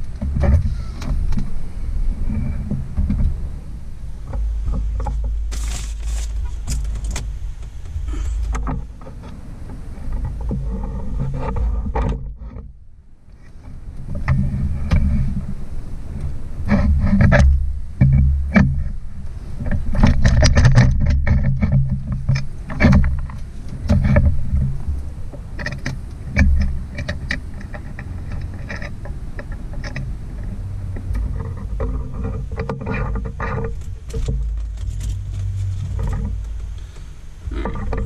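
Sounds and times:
low rumble: 0.0s - 38.0s
hands adjusting metal mount: 4.3s - 9.4s, 19.6s - 38.0s.

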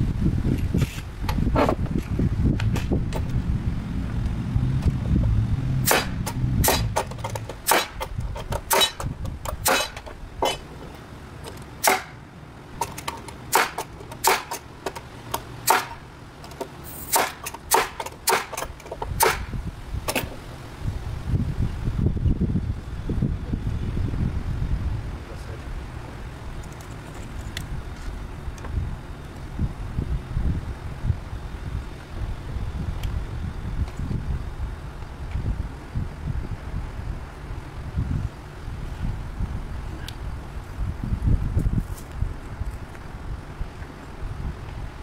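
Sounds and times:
wind rumble on microphone: 0.0s - 11.2s, 18.7s - 45.0s
metal tools striking nails: 5.9s - 10.6s, 11.8s - 12.1s, 12.8s - 15.0s, 15.6s - 16.0s, 17.0s - 19.5s.

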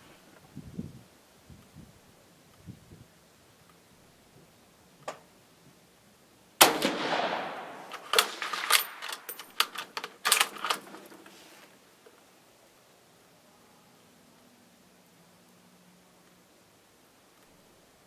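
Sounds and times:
rifle shot: 6.6s - 9.0s
rifle bolt metallic clacks: 6.6s - 11.0s.

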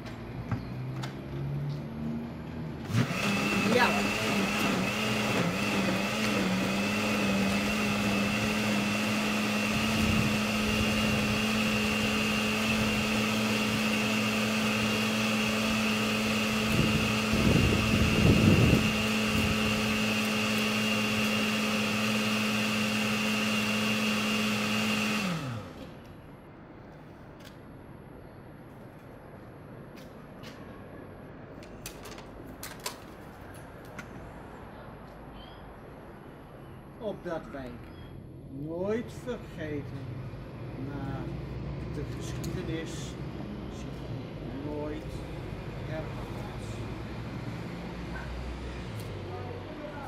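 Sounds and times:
blender running: 2.8s - 26.0s.

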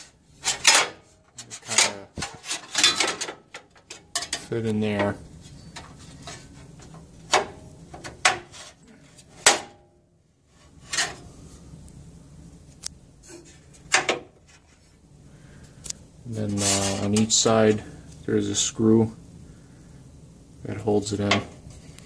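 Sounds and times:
light metal rubbing: 0.0s - 9.4s, 16.3s - 18.0s
sheet metal clanking on steel frame: 0.4s - 5.1s.

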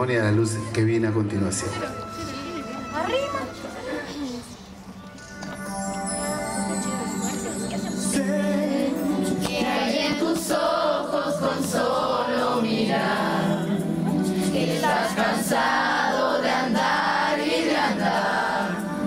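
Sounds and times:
voices singing over music: 5.6s - 19.0s.

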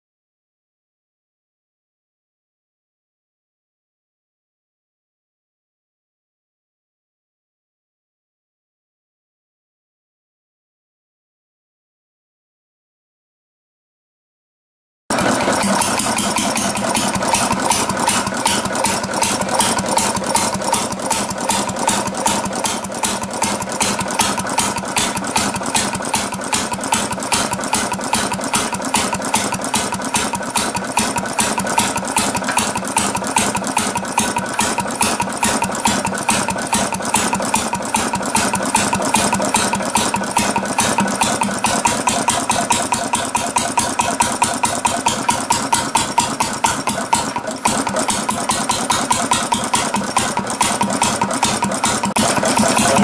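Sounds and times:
two-stroke engine running: 15.1s - 53.0s.

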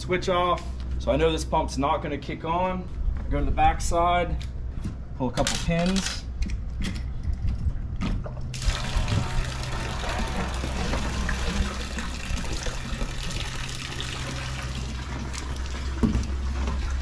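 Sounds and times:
steady low hum: 0.0s - 17.0s
water pouring and trickling: 8.5s - 17.0s.

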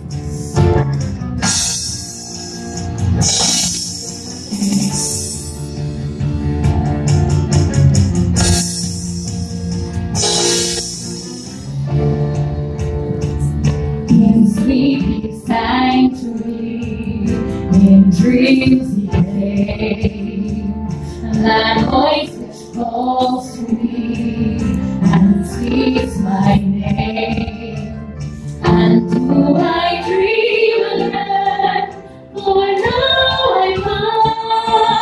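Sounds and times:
live band playing: 0.0s - 35.0s.

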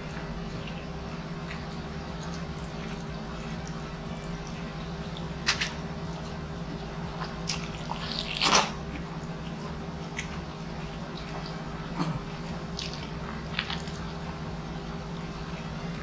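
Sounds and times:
steady low hum: 0.0s - 16.0s
wet biting and mouth sounds: 5.4s - 5.8s, 7.1s - 10.5s, 11.2s - 14.3s.

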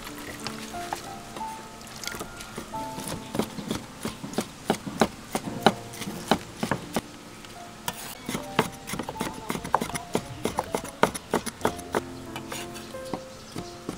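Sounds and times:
cleaver chopping on wooden board: 3.0s - 7.0s, 8.2s - 13.9s.

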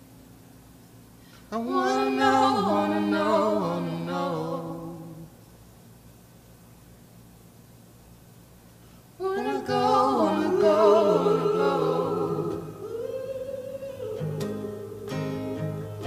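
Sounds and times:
wordless singing: 1.5s - 5.4s, 9.2s - 16.0s.

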